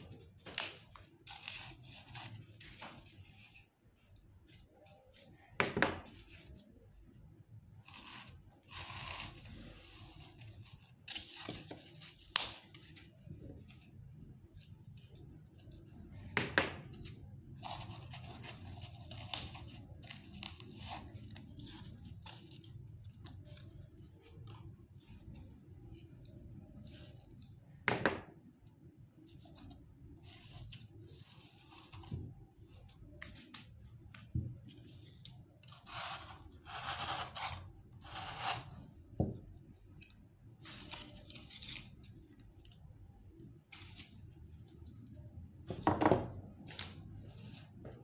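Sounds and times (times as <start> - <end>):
knife cutting floral foam: 0.4 - 3.6, 16.2 - 22.7, 35.6 - 39.4.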